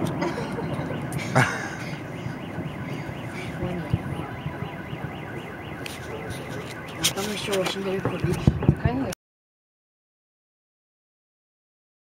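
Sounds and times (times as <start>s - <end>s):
car alarm wailing: 0.0s - 9.2s.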